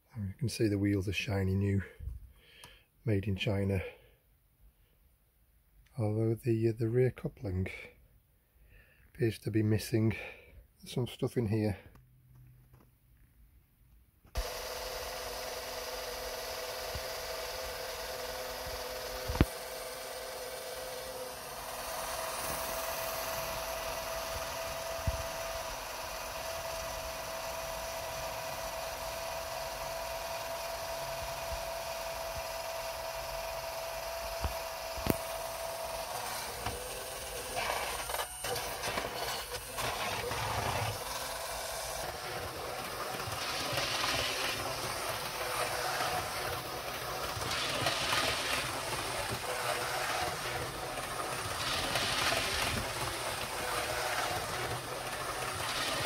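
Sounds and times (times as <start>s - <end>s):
model train running on rails: 37.9s - 56.0s.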